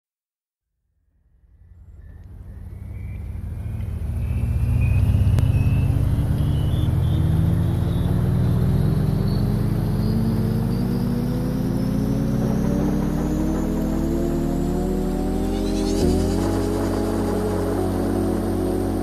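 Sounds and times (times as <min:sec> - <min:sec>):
quadcopter motors whirring: 0:10.6 - 0:18.9.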